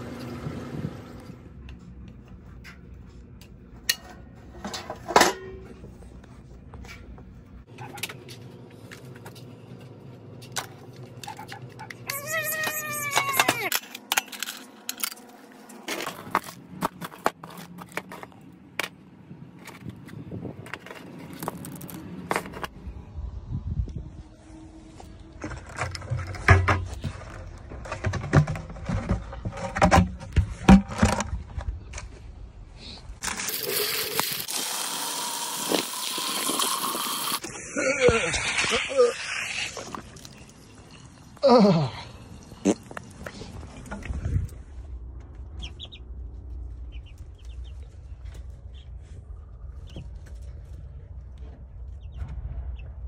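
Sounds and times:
water hissing from hose: 33.5s - 40.5s
chicks peeping: 45.6s - 46.0s.

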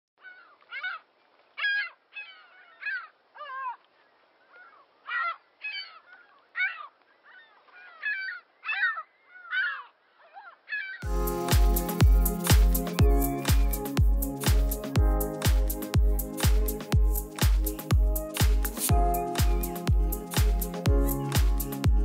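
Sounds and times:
birds making harsh calls: 4.4s - 14.9s, 16.6s - 21.9s.

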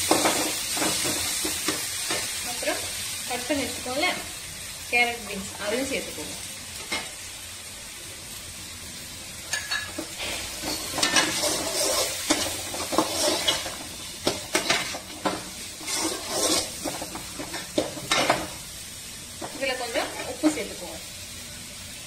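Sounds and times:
vegetables sizzling in oil: 0.0s - 22.0s
ladle scraping metal pan: 9.6s - 18.4s.

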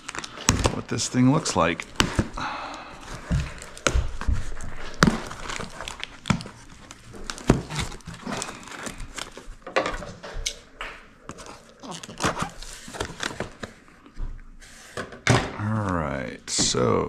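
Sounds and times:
plastic wrapping crinkling: 0.0s - 9.8s, 11.2s - 14.1s.

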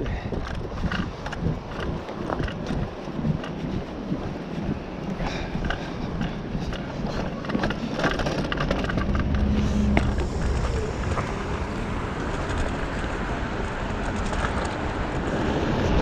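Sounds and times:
road noise: 0.0s - 16.0s
wind on microphone: 0.0s - 16.0s
rattling clicks: 0.3s - 3.6s, 5.6s - 10.7s.

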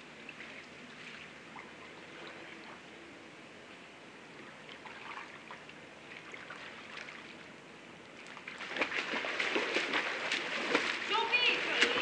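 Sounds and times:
pool water lapping: 0.0s - 12.0s
swimmer splashing strokes: 8.2s - 12.0s.

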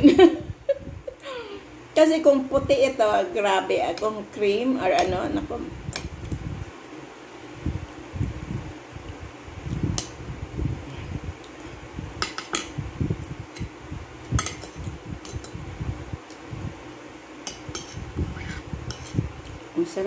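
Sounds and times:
soft eating sounds: 5.9s - 19.8s.

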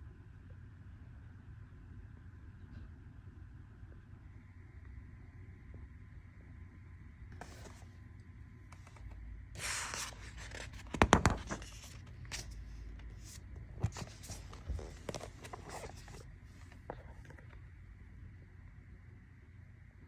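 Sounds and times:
book page turning: 7.4s - 7.9s, 8.7s - 17.6s
book knocks and taps: 10.6s - 12.5s.

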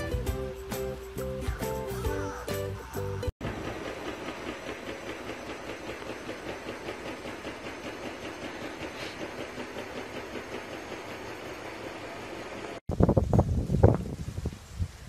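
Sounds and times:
washing machine drum turning: 3.4s - 12.8s.

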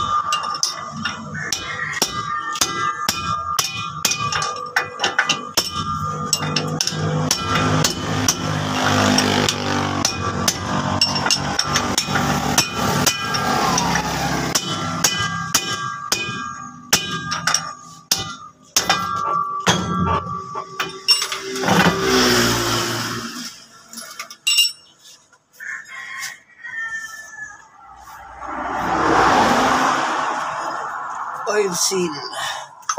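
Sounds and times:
hammer striking steel: 0.0s - 22.5s.

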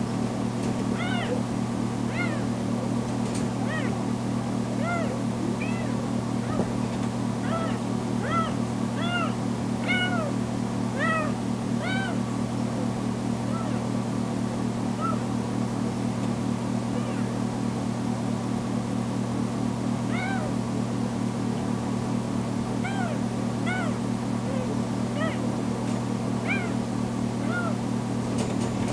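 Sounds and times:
steady low hum: 0.0s - 28.9s
kitten meowing loudly: 1.0s - 1.4s, 2.1s - 2.5s, 3.7s - 4.0s, 4.8s - 6.6s, 7.4s - 10.4s, 11.0s - 12.2s, 20.1s - 20.5s, 26.4s - 26.8s, 27.4s - 27.8s.

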